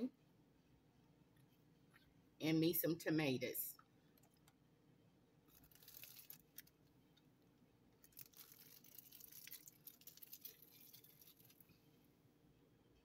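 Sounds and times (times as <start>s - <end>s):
soft rustling from handling food: 8.0s - 12.0s.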